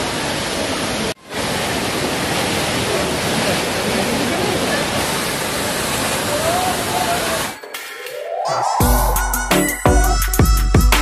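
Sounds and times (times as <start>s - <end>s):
waterfall rushing over rock: 0.0s - 7.6s.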